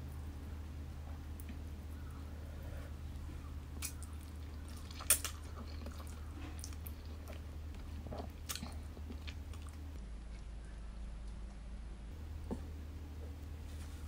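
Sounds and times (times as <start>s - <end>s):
steady low hum: 0.0s - 14.0s
person slurping and chewing: 3.8s - 9.7s.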